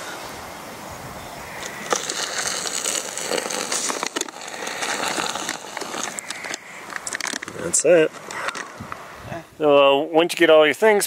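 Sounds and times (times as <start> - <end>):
camping gear rustling: 1.4 - 9.3
small clicks and knocks: 5.0 - 8.8.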